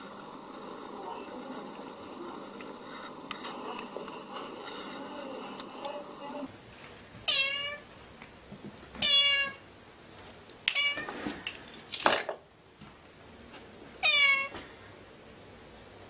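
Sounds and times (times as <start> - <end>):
rough noisy cat sound: 7.2 - 8.0, 9.0 - 9.7, 14.0 - 14.9
cat meowing: 7.3 - 7.8, 9.0 - 9.6, 10.7 - 11.1, 14.0 - 14.6.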